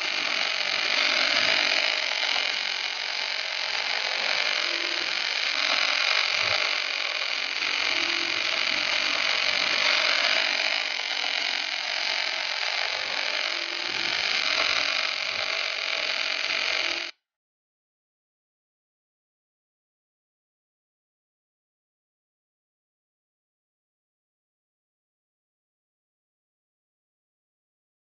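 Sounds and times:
welding arc hiss: 0.0s - 17.1s.

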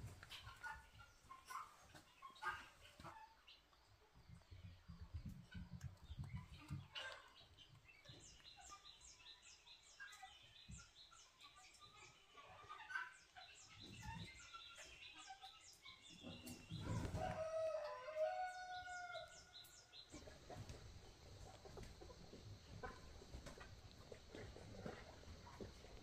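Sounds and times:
rooster crowing: 16.8s - 19.5s.

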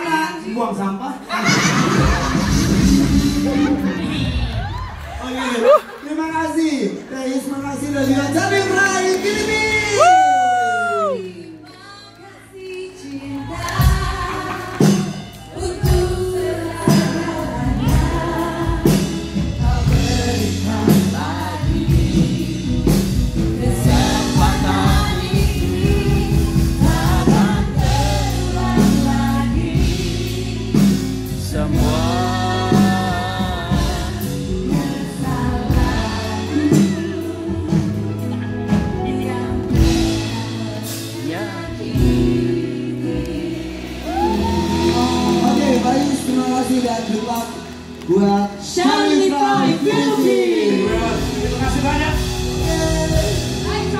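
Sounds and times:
singers on microphones: 0.0s - 5.9s, 7.6s - 53.9s
band with drum beat and bass: 1.3s - 6.0s, 7.8s - 11.2s, 13.5s - 53.9s
backing voices singing: 12.6s - 38.1s, 39.2s - 47.4s, 48.1s - 53.8s.

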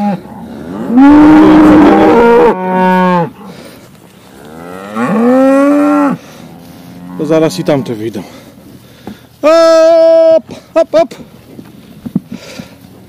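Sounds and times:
cattle bellowing: 0.0s - 8.5s.

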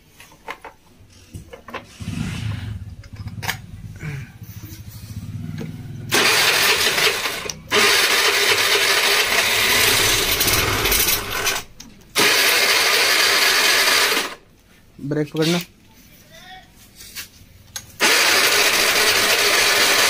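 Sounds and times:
scooter engine idling and revving: 1.8s - 14.4s, 17.4s - 20.0s.

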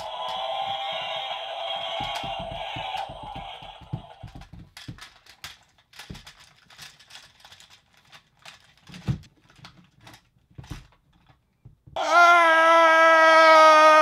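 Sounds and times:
plastic toys clicking and clattering: 2.1s - 11.6s.

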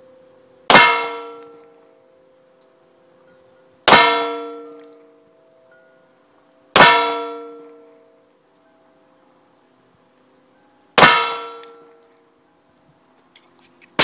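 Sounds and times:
long metallic ring: 0.0s - 12.8s.

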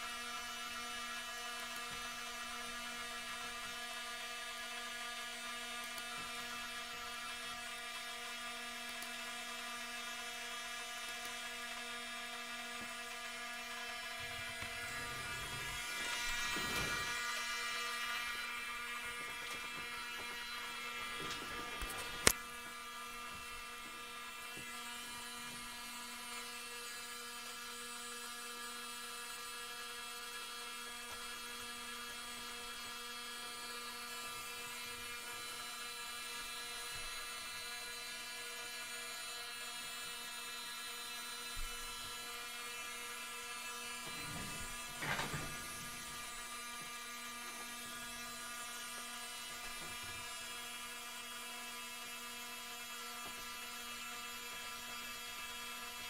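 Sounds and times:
servo motors whining: 13.3s - 25.6s.

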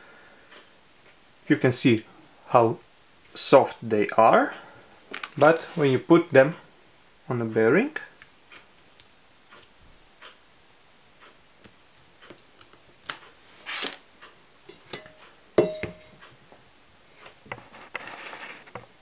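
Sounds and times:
sharp knock with ring: 15.6s - 16.1s.

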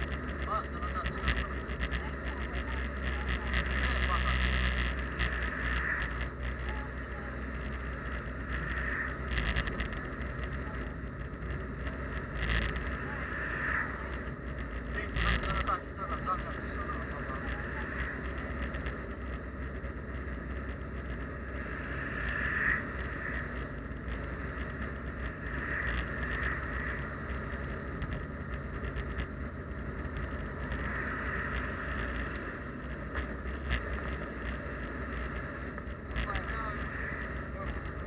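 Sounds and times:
car engine and tyre rumble: 0.0s - 38.0s.

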